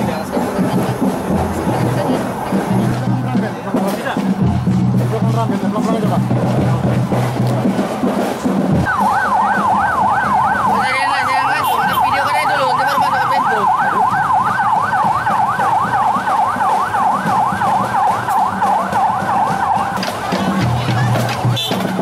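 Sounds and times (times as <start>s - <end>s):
electronic siren yelping: 8.8s - 21.1s.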